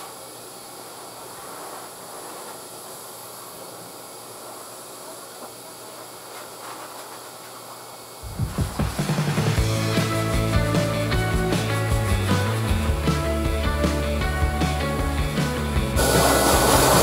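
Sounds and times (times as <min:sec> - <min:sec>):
grooming dryer hissing: 0:00.0 - 0:17.0
music with a strong beat: 0:08.2 - 0:17.0.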